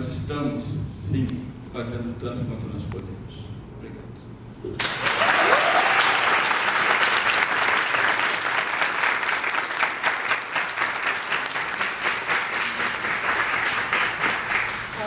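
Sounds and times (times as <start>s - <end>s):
audience applauding: 4.8s - 15.0s.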